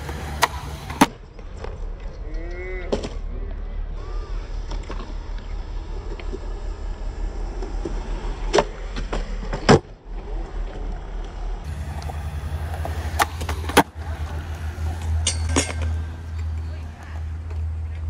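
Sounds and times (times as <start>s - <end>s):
skateboard clacking on ground: 0.0s - 3.2s, 10.6s - 18.0s
skateboard wheels rolling on concrete: 0.0s - 18.0s.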